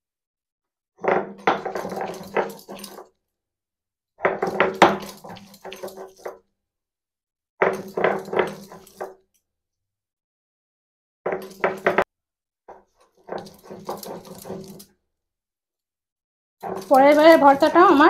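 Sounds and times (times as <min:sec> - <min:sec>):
stone roller grinding on stone: 0:01.0 - 0:03.1, 0:04.2 - 0:06.3, 0:12.7 - 0:15.0, 0:16.6 - 0:18.0.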